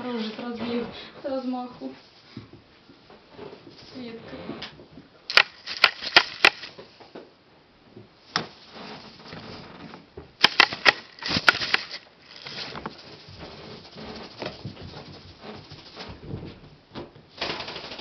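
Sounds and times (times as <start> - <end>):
kittens pattering and scuffling: 0.0 - 7.3, 7.9 - 17.9
sharp clicks: 5.3 - 6.8, 10.4 - 12.8.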